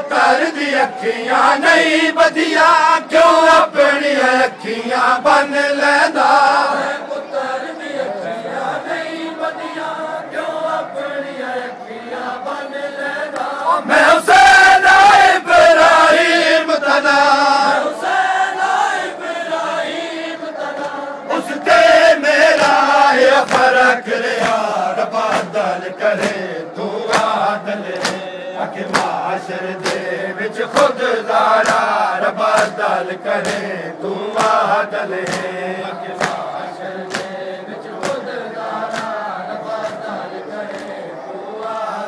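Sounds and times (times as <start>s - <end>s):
men chanting in unison: 0.0s - 42.0s.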